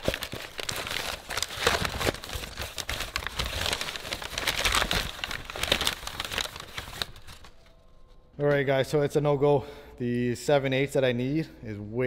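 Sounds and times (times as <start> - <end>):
packing paper rustling: 0.0 - 8.3.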